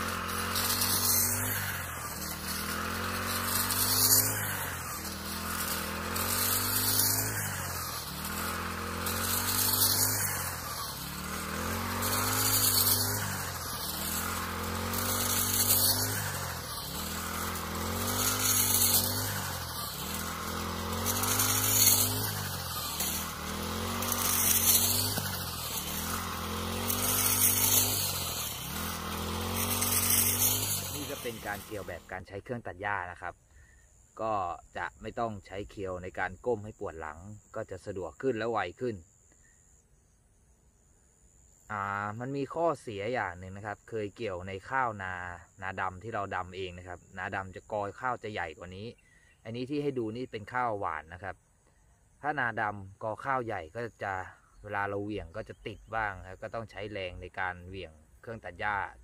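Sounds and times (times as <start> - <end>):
hiss of cut straw: 0.0 - 32.1
brush cutter engine running: 0.0 - 32.2.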